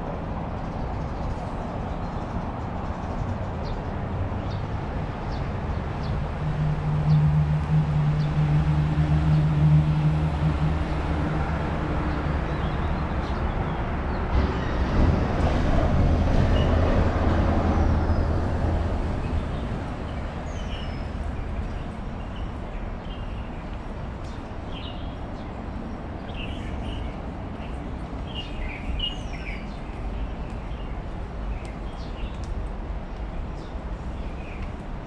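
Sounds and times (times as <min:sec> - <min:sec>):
road traffic: 0:00.0 - 0:35.0
heavy vehicle engine drone: 0:05.5 - 0:13.0.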